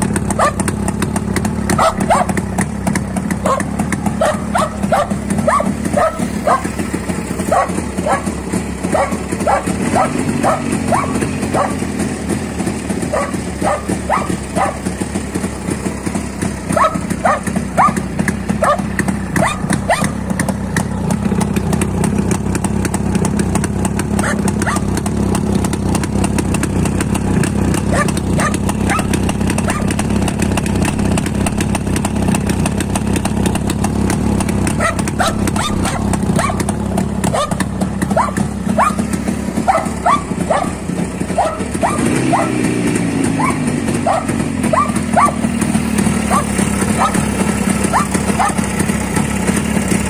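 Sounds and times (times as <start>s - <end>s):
motorcycle engine idling: 0.0s - 50.0s
dog barking: 0.4s - 0.7s, 1.7s - 2.4s, 3.4s - 6.8s, 7.5s - 11.9s, 13.1s - 14.9s, 16.7s - 20.2s, 24.2s - 24.9s, 27.9s - 30.0s, 34.8s - 36.7s, 37.3s - 42.7s, 43.4s - 45.4s, 46.3s - 48.6s.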